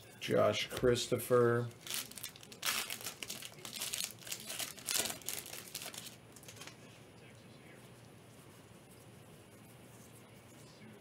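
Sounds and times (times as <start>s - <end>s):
foil wrapper crinkling: 1.7s - 6.7s.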